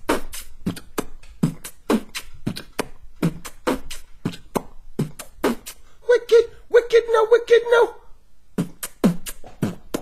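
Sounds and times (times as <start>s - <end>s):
human beatboxing: 0.0s - 7.9s, 8.5s - 10.0s.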